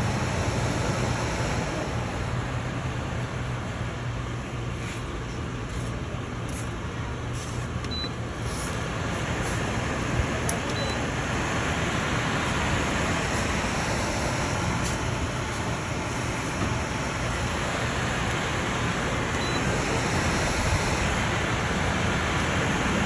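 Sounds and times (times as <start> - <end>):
air cooler fan running: 0.0 - 23.0
short high beeps: 10.8 - 11.0, 19.4 - 19.7.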